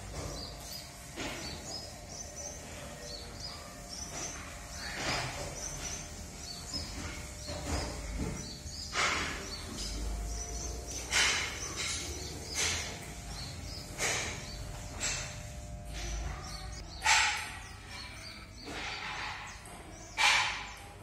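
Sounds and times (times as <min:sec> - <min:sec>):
small birds chirping: 0:00.0 - 0:21.0
electric hair clippers cutting: 0:00.5 - 0:02.7.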